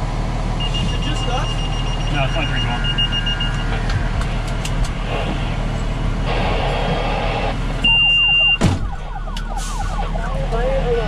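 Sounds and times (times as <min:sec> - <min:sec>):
fire engine idling: 0:00.0 - 0:11.0
high steady beep: 0:00.6 - 0:03.8, 0:07.8 - 0:08.6.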